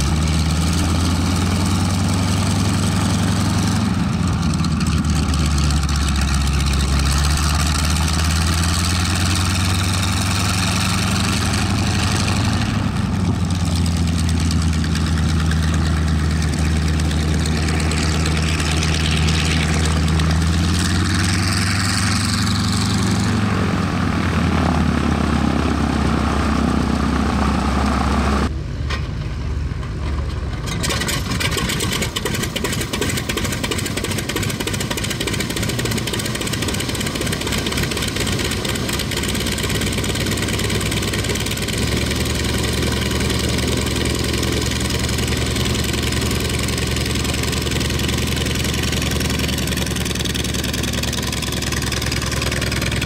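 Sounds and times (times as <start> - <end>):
radial aircraft engine idling: 3.5 - 21.5, 29.5 - 53.0.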